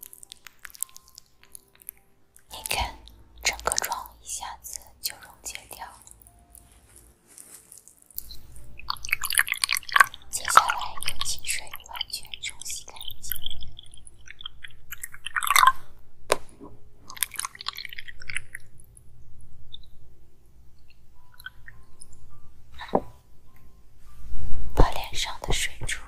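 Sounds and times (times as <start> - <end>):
crackling handling noises: 0.0 - 18.7
water pouring and sloshing: 8.9 - 15.9, 17.0 - 18.8.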